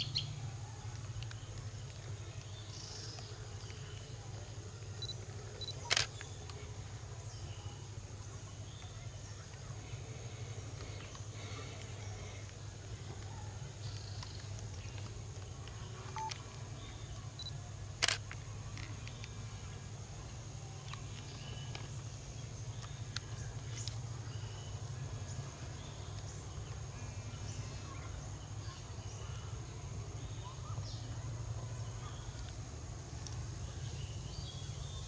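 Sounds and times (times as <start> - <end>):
faint bird chirps: 4.9 - 15.0, 15.7 - 18.2.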